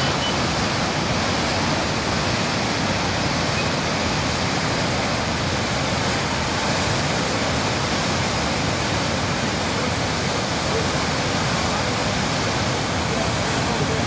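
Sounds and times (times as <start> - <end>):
flooded river rushing: 0.0 - 14.0.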